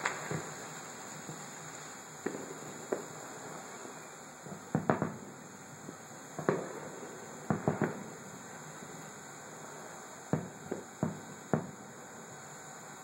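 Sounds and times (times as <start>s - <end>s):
distant firework booms: 0.0s - 1.4s, 2.2s - 3.2s, 4.4s - 5.3s, 6.4s - 8.2s, 10.3s - 11.8s
steady background hiss: 0.0s - 13.0s.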